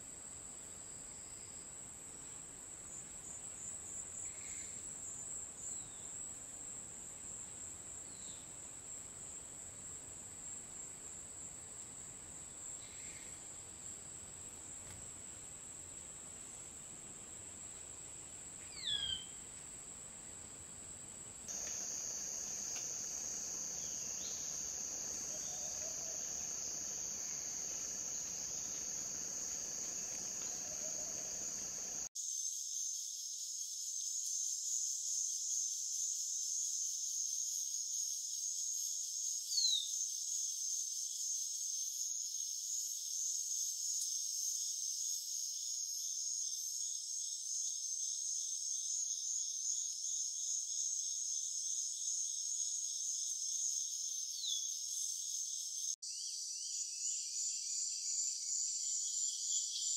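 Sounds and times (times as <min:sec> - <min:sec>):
low background hiss: 0:00.8 - 0:32.1
forest insects buzzing: 0:21.5 - 0:32.1.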